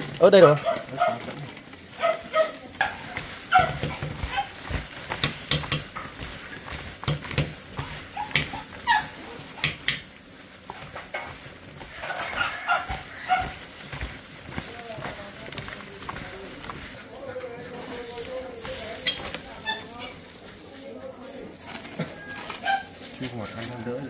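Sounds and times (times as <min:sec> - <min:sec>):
food sizzling in a pan: 0:02.8 - 0:16.8
utensil clinking while stirring: 0:02.8 - 0:17.0.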